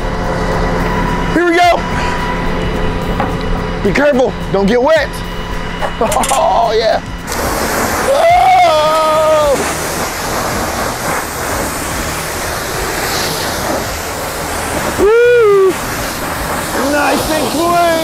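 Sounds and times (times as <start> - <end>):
pressure washer spraying water: 0.0 - 18.0
man calling out: 8.0 - 9.6.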